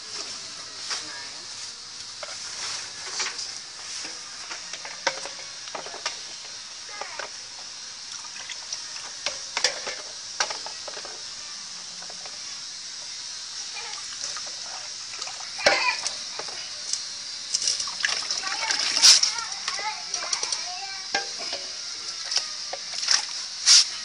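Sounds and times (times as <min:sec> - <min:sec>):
steady high hiss: 0:00.0 - 0:24.0.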